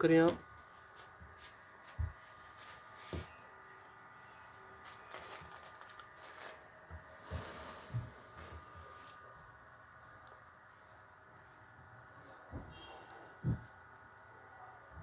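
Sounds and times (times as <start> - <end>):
faint background hum: 0.0 - 15.0
fabric rustling: 0.6 - 3.5, 4.7 - 9.4.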